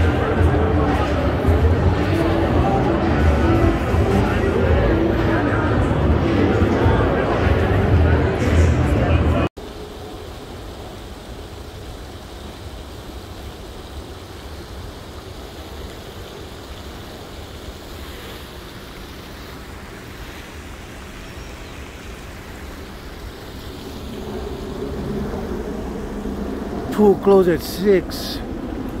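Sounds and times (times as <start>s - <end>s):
outdoor rushing noise: 0.0s - 29.0s
low rumble: 23.7s - 27.0s.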